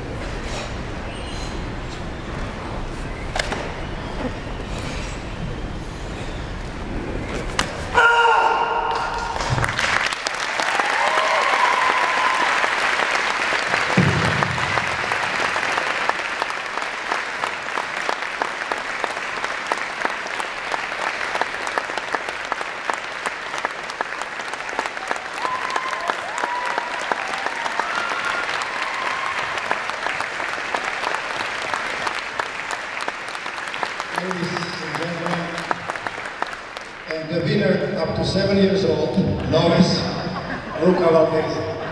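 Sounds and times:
crowd applauding: 8.9 - 38.7.

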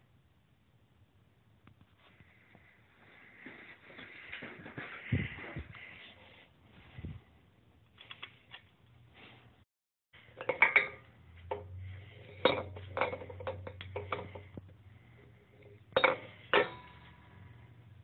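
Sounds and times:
metal fan parts clinking: 10.2 - 17.6.

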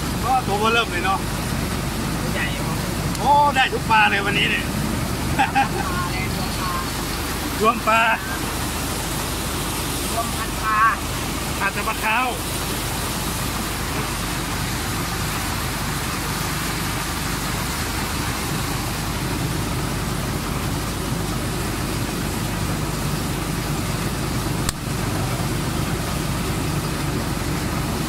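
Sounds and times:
constant hiss: 0.0 - 28.0
engine humming: 0.0 - 28.0.

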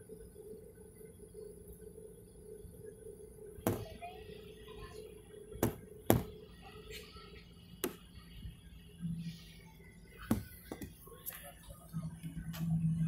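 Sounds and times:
airliner cabin hum: 0.2 - 13.0
sharp knocks: 3.7 - 4.0, 5.6 - 6.4.

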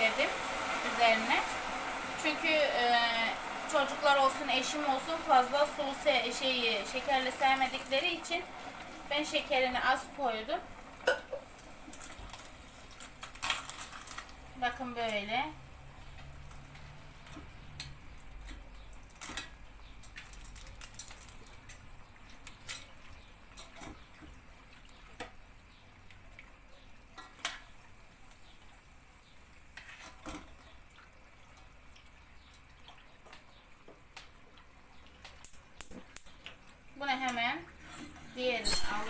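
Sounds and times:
metal clinking against pots: 11.0 - 11.5, 38.0 - 39.0.

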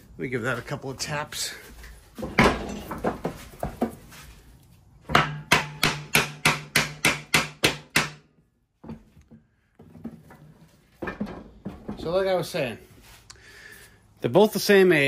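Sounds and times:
hammer tapping on metal: 5.1 - 8.2.

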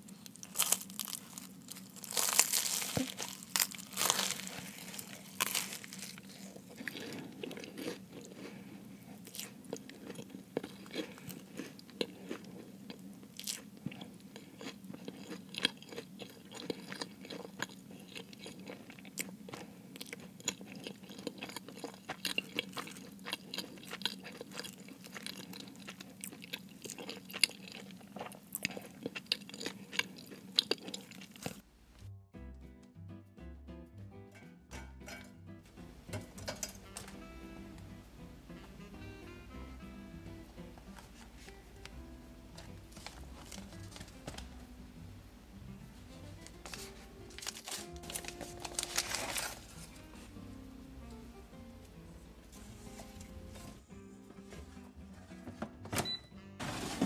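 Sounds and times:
chewing with small crackles: 0.0 - 31.6
pastry crust crunching: 0.0 - 31.6, 40.9 - 44.6, 46.3 - 50.3.

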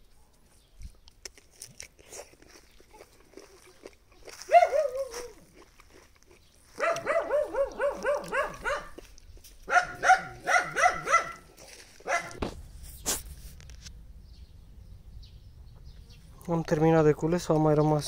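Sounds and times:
dog barking: 4.5 - 5.3, 6.8 - 9.1, 9.7 - 12.4.

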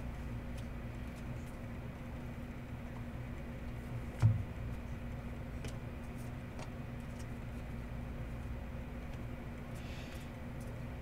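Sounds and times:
low electrical hum: 0.0 - 11.0
dull thump: 4.2 - 4.7.

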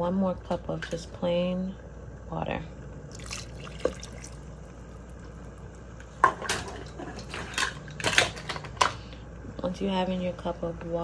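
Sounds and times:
water pouring into pot: 3.1 - 6.0.

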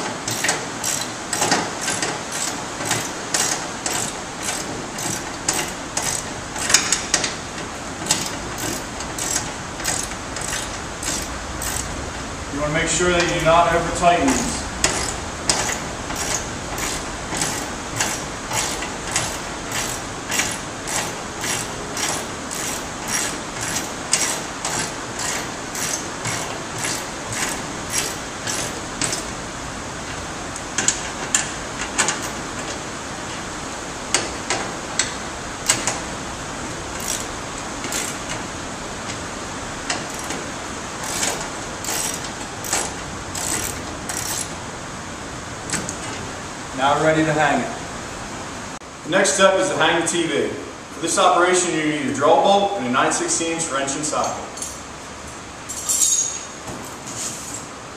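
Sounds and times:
ratchet wrench clicking: 0.3 - 7.3, 8.1 - 11.9, 14.3 - 29.3, 37.0 - 38.2, 41.0 - 44.6.

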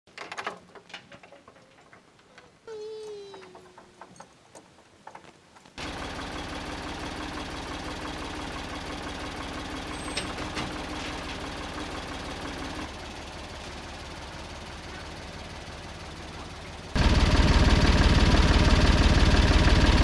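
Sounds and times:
tractor engine running: 5.8 - 20.0.

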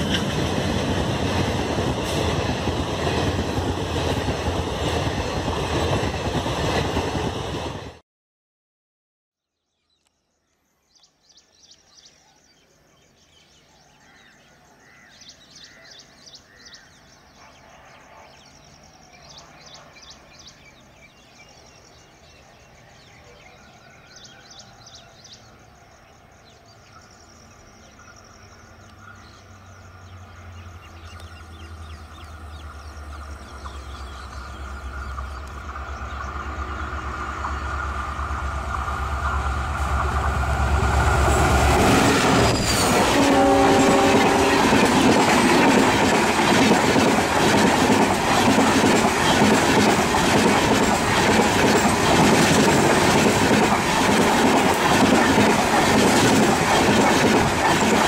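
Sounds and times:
diesel locomotive engine rumble: 28.8 - 58.0
train wheels clattering: 37.2 - 58.0.

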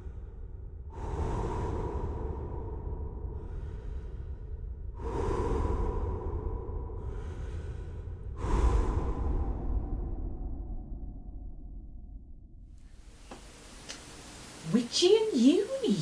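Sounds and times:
slow heavy breathing: 0.0 - 11.6.

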